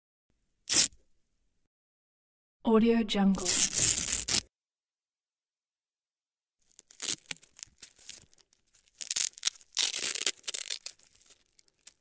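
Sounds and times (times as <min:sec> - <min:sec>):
velcro ripping apart: 0:00.7 - 0:01.0, 0:03.4 - 0:04.5, 0:06.6 - 0:12.0.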